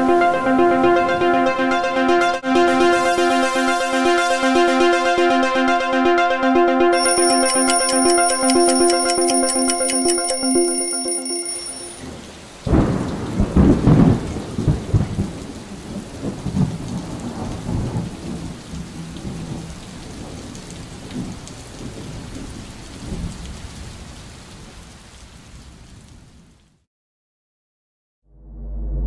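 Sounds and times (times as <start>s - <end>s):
ringing musical tones: 6.9s - 12.2s
steady rain: 7.0s - 26.8s
thunder clap and rumble: 12.7s - 23.8s.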